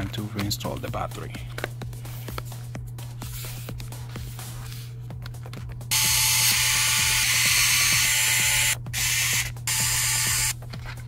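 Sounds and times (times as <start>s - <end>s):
electric screwdriver whirring: 5.9s - 10.6s.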